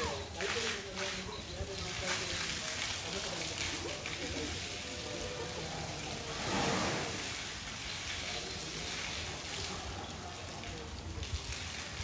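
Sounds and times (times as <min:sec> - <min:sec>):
water splashing on concrete: 0:00.0 - 0:12.0.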